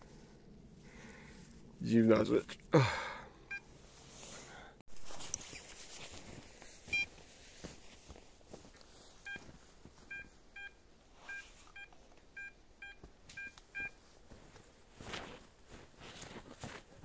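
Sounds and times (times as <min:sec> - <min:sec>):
rustle: 0:03.7 - 0:12.2
metal detector beeping: 0:06.9 - 0:07.1.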